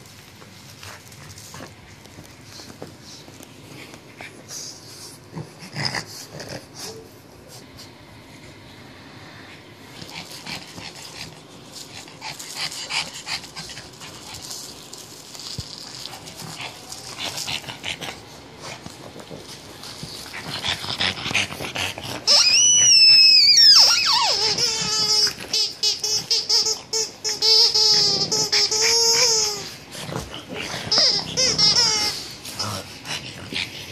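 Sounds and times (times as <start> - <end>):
dog sniffing and snuffling: 0.0 - 8.0, 9.1 - 22.6
toy squeaker squeaking: 22.3 - 29.6.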